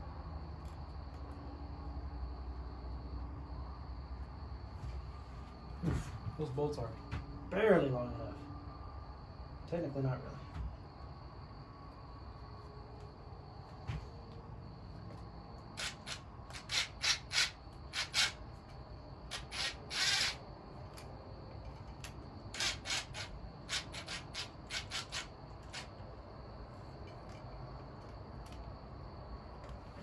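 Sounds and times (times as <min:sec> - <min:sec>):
hand ratchet clicking: 0:15.8 - 0:18.4, 0:19.3 - 0:21.1, 0:22.0 - 0:26.0.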